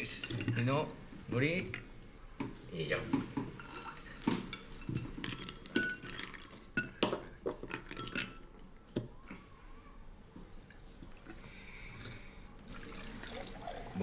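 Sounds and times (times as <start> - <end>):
dishes and cutlery clinking: 0.0 - 1.9, 3.1 - 9.4.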